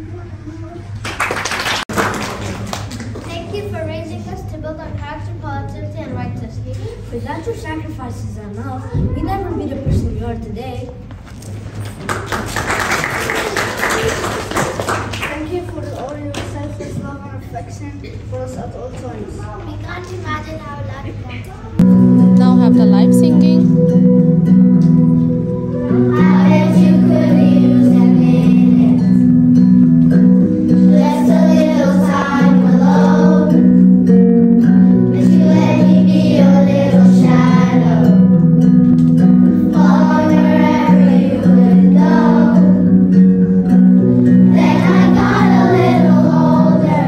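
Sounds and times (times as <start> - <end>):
instrumental accompaniment of held chords: 21.8 - 47.0
children singing: 25.9 - 29.2, 30.7 - 33.7, 35.1 - 38.2, 39.6 - 42.9, 44.4 - 47.0.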